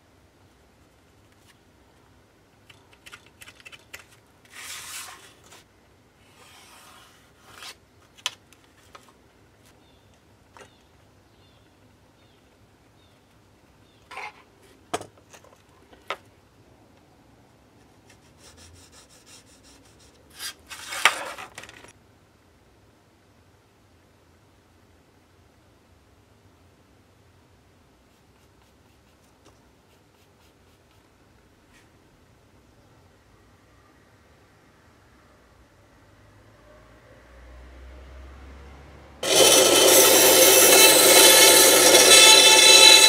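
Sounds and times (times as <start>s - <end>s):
pencil scratching on plywood: 6.3s - 7.8s, 18.1s - 20.5s
metal tools clicking and scraping: 39.2s - 43.0s.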